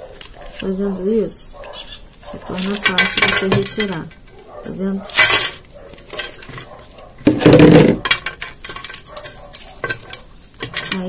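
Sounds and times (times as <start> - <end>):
plastic plant pot rustling and clicking: 0.0 - 0.8, 1.6 - 4.4, 5.0 - 11.0
clatter in metal basin: 2.4 - 4.3, 5.1 - 11.0
potting substrate crumbling: 5.1 - 11.0.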